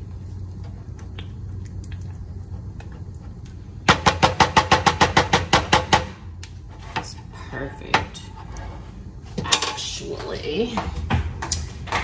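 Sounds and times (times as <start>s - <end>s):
low steady hum: 0.0s - 12.0s
stirring in a pot: 6.5s - 10.4s.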